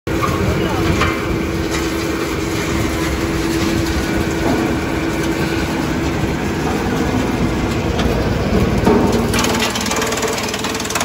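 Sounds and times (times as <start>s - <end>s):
wood chipper running: 0.1s - 11.0s.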